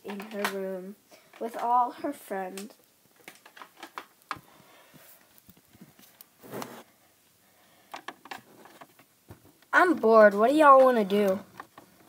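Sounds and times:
plastic toys clicking and tapping: 0:00.0 - 0:00.7, 0:02.4 - 0:04.4, 0:07.9 - 0:12.0.

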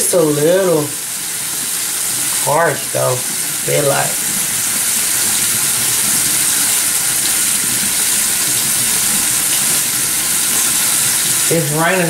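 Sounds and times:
facial steamer hissing: 0:04.0 - 0:12.0.

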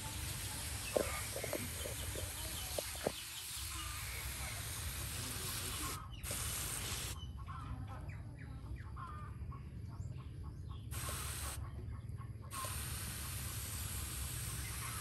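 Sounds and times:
pressure sprayer hissing: 0:00.0 - 0:07.2, 0:10.9 - 0:11.6, 0:12.5 - 0:15.0
birds calling faintly: 0:00.0 - 0:15.0.

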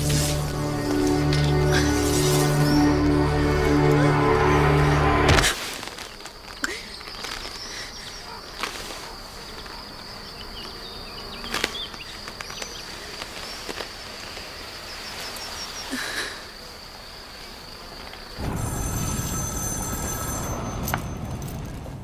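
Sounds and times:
music: 0:00.0 - 0:05.6
high insect buzz: 0:00.0 - 0:06.6, 0:07.4 - 0:18.4.

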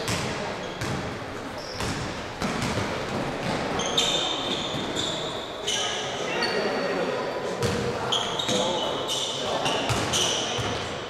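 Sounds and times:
basketball bouncing on gym floor: 0:00.0 - 0:05.2, 0:07.6 - 0:07.8, 0:09.8 - 0:10.9
sneaker squeaks: 0:00.0 - 0:11.0.

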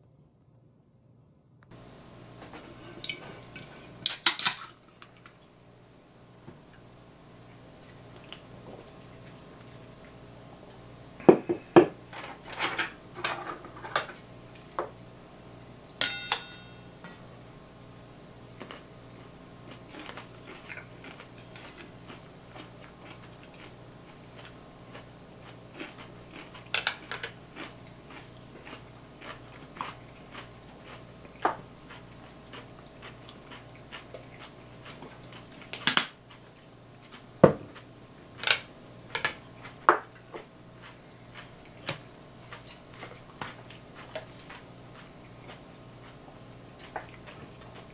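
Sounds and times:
chopsticks clinking on tableware: 0:15.9 - 0:17.2.

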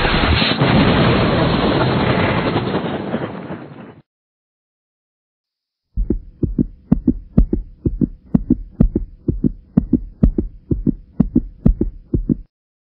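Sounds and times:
faint steady hum: 0:06.0 - 0:12.5
heartbeat thumps: 0:06.0 - 0:12.5.

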